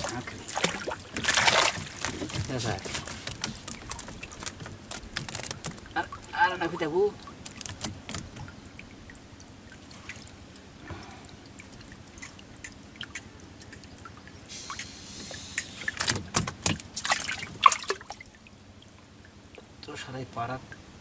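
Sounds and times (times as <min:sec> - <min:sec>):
taps and clicks of fish trap: 0:00.5 - 0:05.9, 0:07.4 - 0:08.5
brief hiss: 0:14.5 - 0:16.0.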